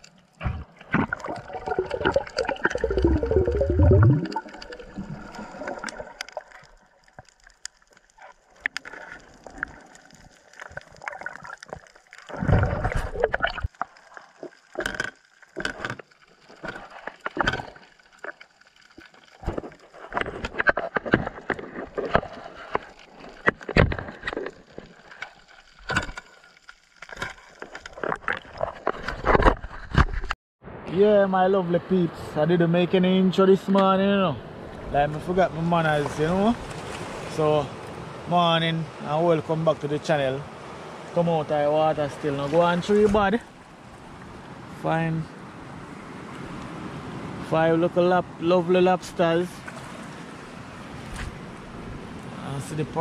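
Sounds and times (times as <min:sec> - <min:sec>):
rushing water bursts: 0:00.0 - 0:20.4, 0:34.6 - 0:47.5
gurgling sloshing water underwater: 0:00.0 - 0:30.2
underwater clicks and knocks: 0:00.0 - 0:30.4.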